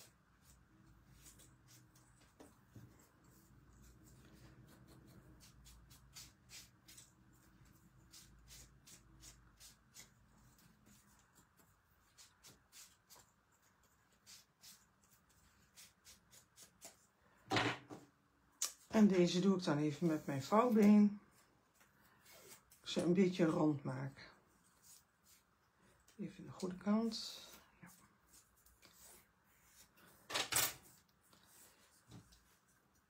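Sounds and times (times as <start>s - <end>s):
foam pad brushing on card: 0.0s - 17.0s
low room hum: 0.0s - 33.0s.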